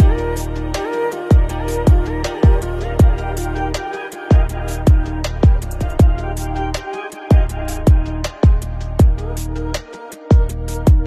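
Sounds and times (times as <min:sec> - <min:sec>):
hi-hat ticks: 0:00.0 - 0:11.0
deep bass drum hits: 0:01.3 - 0:03.3, 0:04.4 - 0:06.3.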